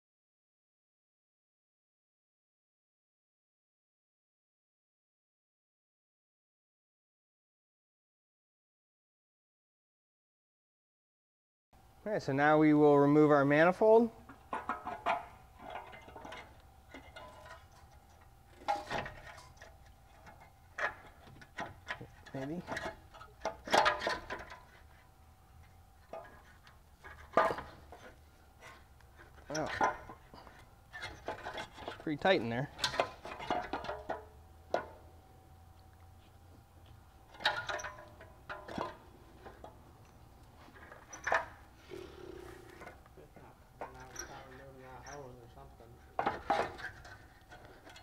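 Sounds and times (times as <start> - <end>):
metal clinks and knocks: 14.3 - 24.9, 25.6 - 35.2, 36.8 - 40.2, 43.8 - 48.0
metal clanking and scraping: 14.3 - 35.1, 37.3 - 39.8, 40.6 - 41.7, 43.8 - 48.0.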